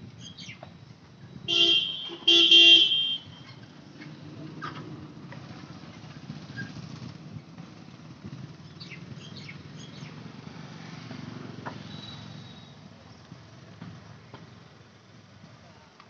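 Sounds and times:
bird chirps: 0.2 - 0.6, 8.6 - 10.2, 11.8 - 12.8.

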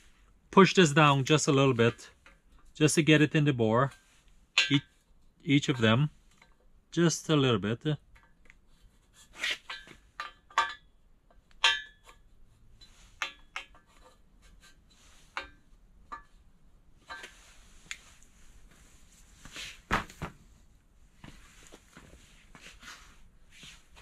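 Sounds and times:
soft rustling: 17.0 - 24.0.

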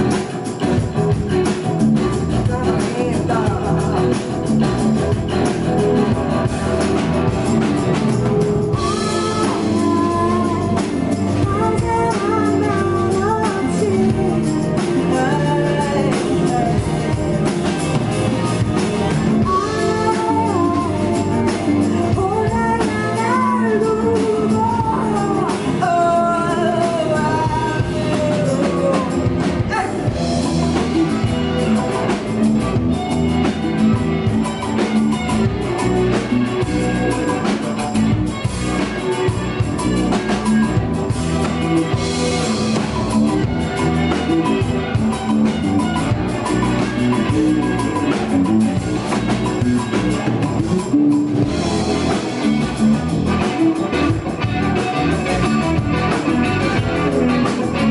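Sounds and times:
rock band playing: 0.0 - 57.9
woman singing: 2.2 - 4.8, 8.8 - 17.7, 19.4 - 30.2.

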